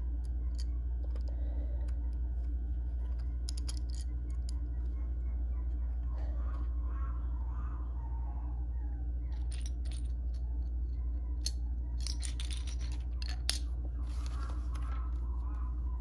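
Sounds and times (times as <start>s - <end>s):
steady low hum: 0.0s - 16.0s
plastic bricks clicking and clattering: 3.0s - 4.6s, 11.4s - 13.7s
paper page rustling: 14.0s - 15.2s.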